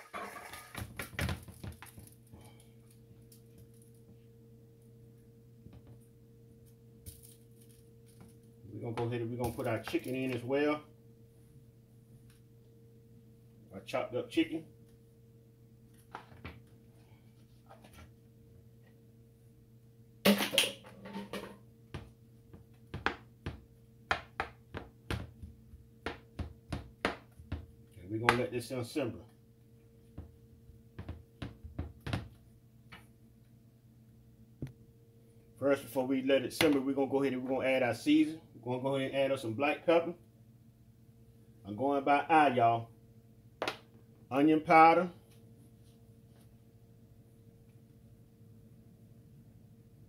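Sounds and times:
wooden spatula scraping skillet: 0.0 - 0.9
steady low hum: 0.0 - 50.0.

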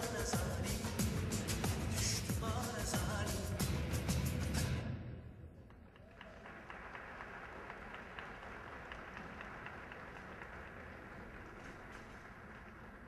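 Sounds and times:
dance music: 0.0 - 4.9
audience applauding: 5.9 - 13.0.

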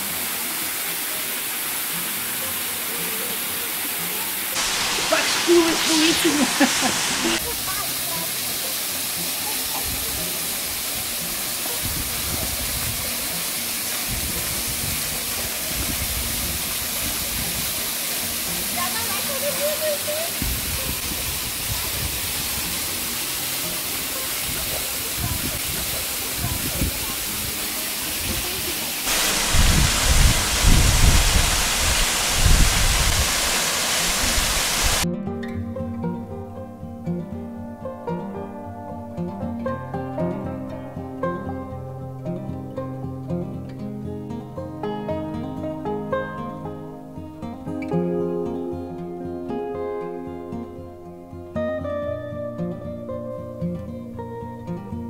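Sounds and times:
waterfall rushing: 0.0 - 35.0.

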